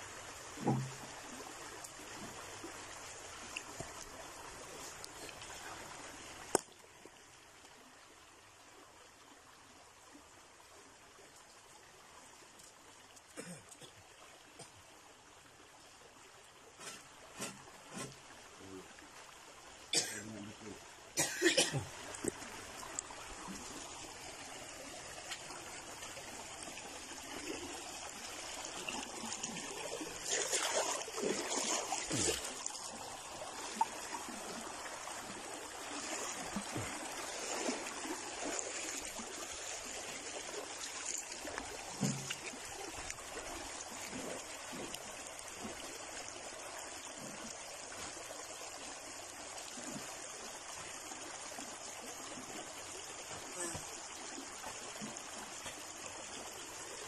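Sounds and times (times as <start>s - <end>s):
stream trickling over stones: 0.0s - 57.0s
knocks and scrapes: 16.8s - 18.3s.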